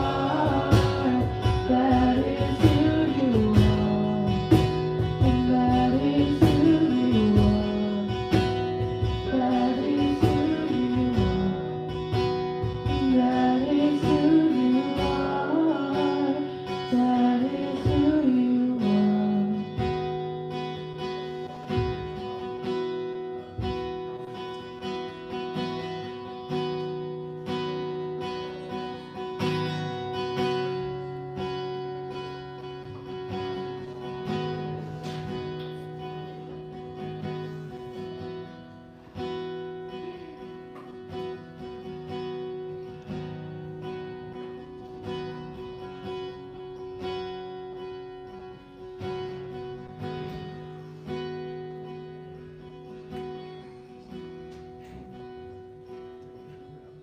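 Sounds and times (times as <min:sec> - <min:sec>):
woman singing: 0:00.0 - 0:11.9, 0:12.8 - 0:19.9
strummed acoustic guitar: 0:00.0 - 0:57.0.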